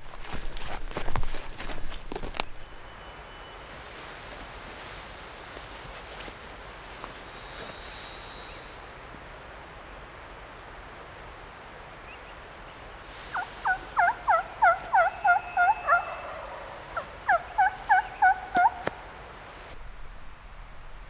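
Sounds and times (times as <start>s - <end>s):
turkey call yelps: 13.3s - 19.0s.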